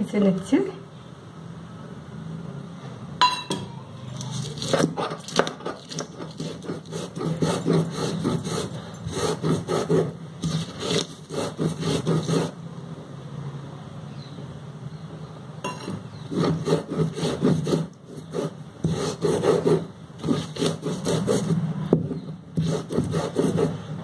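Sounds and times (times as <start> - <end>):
ringing metal clink: 3.2 - 4.4
grinding stone scraping on slab: 4.3 - 12.6, 15.7 - 21.6, 22.6 - 23.8.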